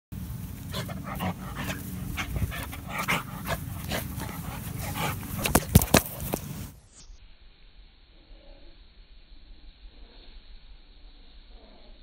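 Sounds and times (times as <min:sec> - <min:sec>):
dog breathing and snuffling: 0:00.5 - 0:06.7.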